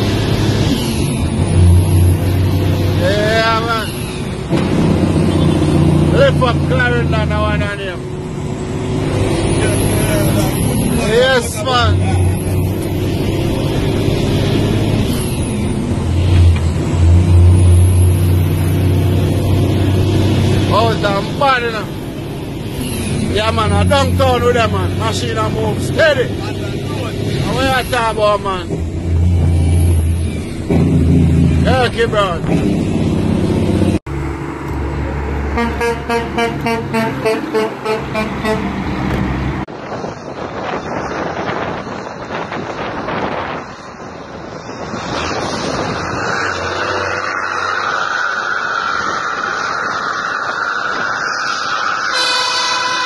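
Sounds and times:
truck diesel engine humming: 0:00.0 - 0:39.9
wind on microphone: 0:39.1 - 0:47.4.

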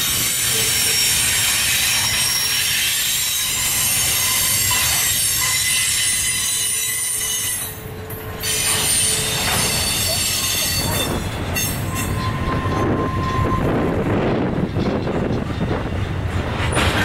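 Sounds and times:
train wheels squealing: 0:00.0 - 0:13.8
low rumble of train cars: 0:00.0 - 0:17.0.

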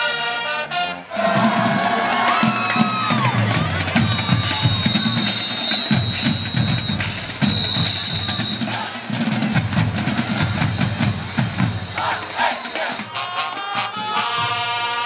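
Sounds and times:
snare drums: 0:00.0 - 0:15.0
bass drums: 0:01.2 - 0:12.3.

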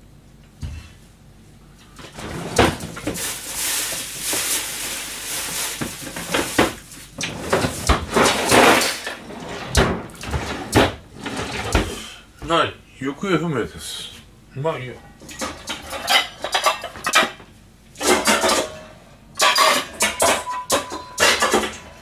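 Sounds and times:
rustling: 0:03.0 - 0:07.1.

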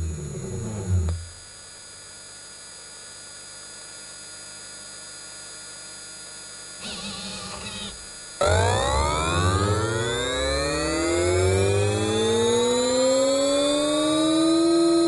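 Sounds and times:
electrical hum with high tones: 0:00.0 - 0:15.0
short motor whir: 0:06.8 - 0:13.0.

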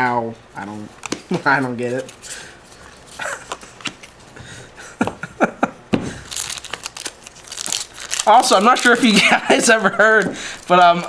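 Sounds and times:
cards handled on a table: 0:01.0 - 0:04.2
foil pack crinkling: 0:06.2 - 0:11.0.

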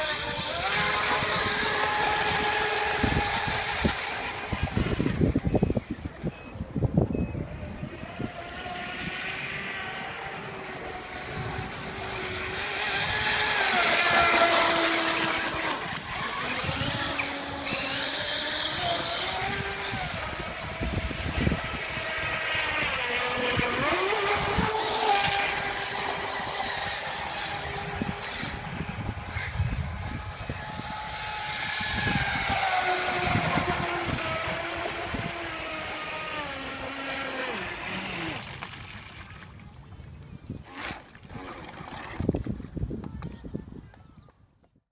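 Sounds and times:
electric motors whining: 0:00.0 - 0:38.9.

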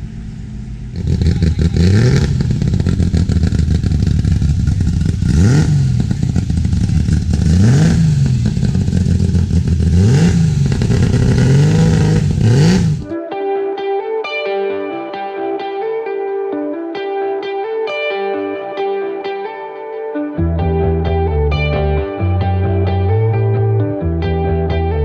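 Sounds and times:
sports car engine revving: 0:00.0 - 0:13.1.

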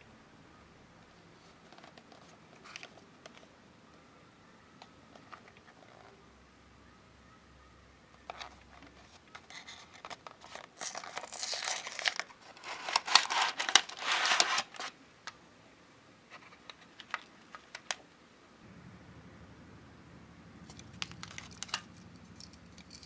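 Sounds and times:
packaging crinkling and rustling: 0:01.6 - 0:03.5, 0:08.3 - 0:15.0.

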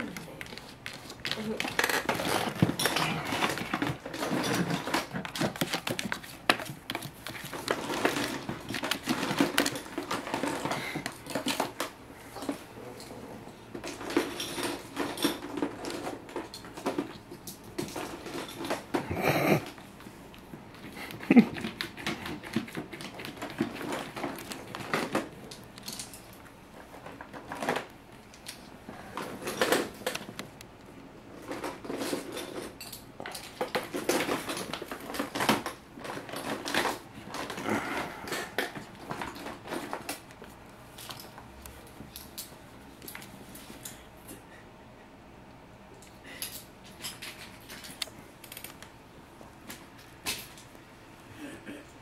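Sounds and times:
cat scratching plastic: 0:00.0 - 0:11.9.

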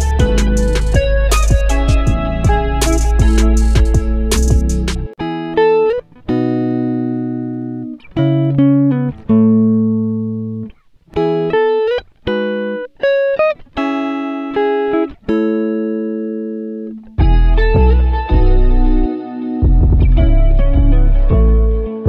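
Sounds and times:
slow guitar melody: 0:00.0 - 0:22.0.

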